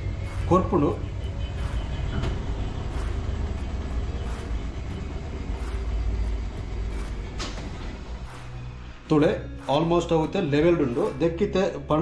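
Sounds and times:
washing machine rumbling: 0:00.0 - 0:09.0.

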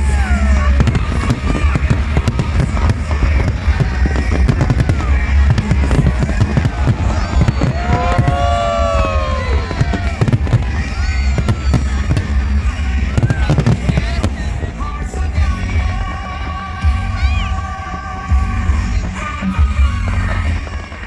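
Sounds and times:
fireworks crackling and popping: 0:00.0 - 0:21.0
whistling fireworks: 0:00.0 - 0:21.0
deep rumble of booms: 0:00.6 - 0:16.1.

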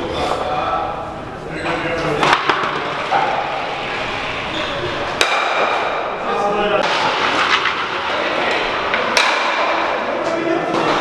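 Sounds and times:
voices in a hall: 0:00.0 - 0:11.0
stocks striking with clack: 0:05.2 - 0:05.8, 0:08.9 - 0:09.8.

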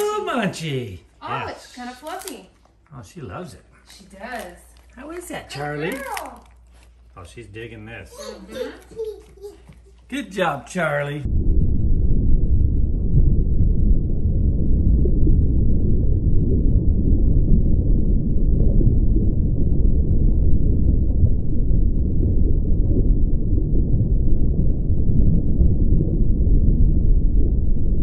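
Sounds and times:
deep underwater rumble: 0:11.2 - 0:28.0.

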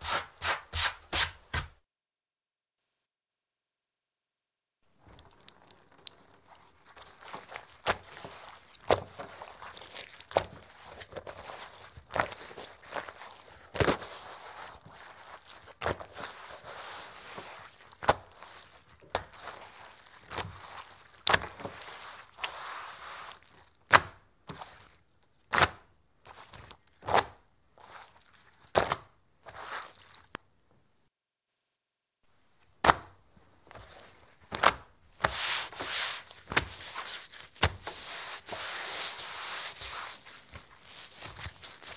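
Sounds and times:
towel wiping across wood: 0:16.2 - 0:17.8, 0:21.7 - 0:23.5, 0:35.2 - 0:41.9
wet towel slapping a table: 0:32.8 - 0:33.2.

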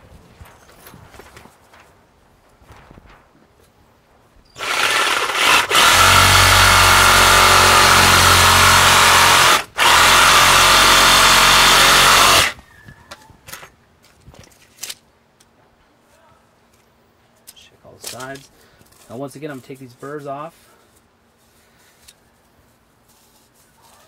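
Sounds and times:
reciprocating saw cutting pipe: 0:04.6 - 0:12.6.

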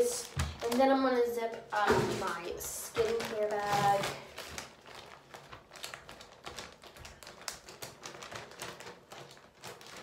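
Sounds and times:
plastic crinkling: 0:00.0 - 0:10.0
plastic bag zipper clicking: 0:02.0 - 0:10.0.

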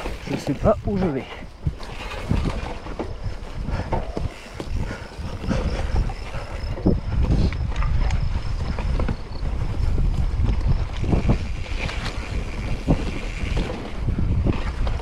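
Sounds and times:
bike rattles and knocks: 0:00.0 - 0:15.0
wind buffeting microphone: 0:00.0 - 0:15.0.

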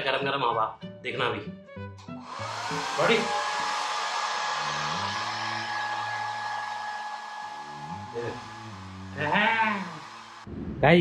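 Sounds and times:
hair dryer whining and blowing: 0:02.2 - 0:10.5.

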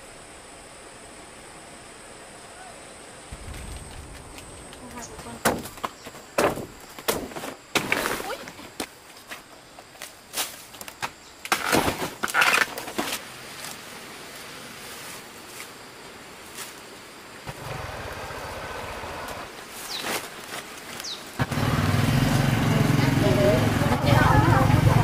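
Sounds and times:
small engine running: 0:17.5 - 0:19.5, 0:21.4 - 0:25.0.

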